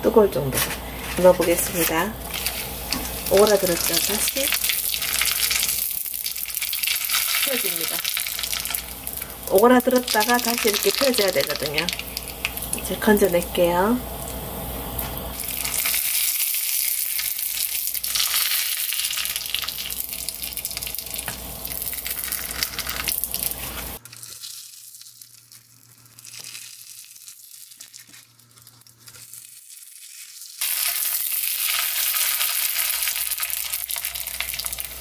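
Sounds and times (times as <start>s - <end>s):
fish skin sizzling in oil: 0.8s - 35.0s.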